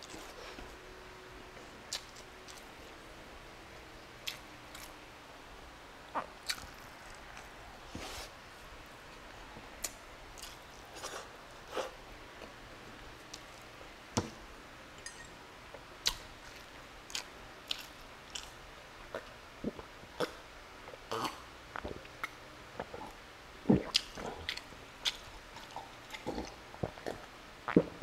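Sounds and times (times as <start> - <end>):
person chewing rice: 9.8 - 11.9, 16.1 - 18.6, 23.8 - 27.8.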